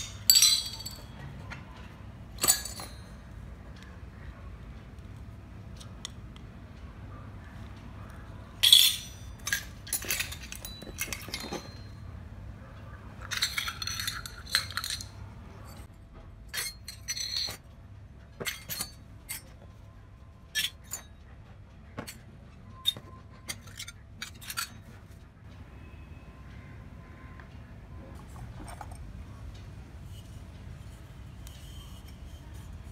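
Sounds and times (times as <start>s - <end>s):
small metal pots clinking: 0.0s - 1.2s, 2.3s - 3.4s, 8.6s - 12.0s, 13.2s - 15.9s, 16.5s - 17.6s, 18.4s - 19.6s, 22.8s - 25.0s.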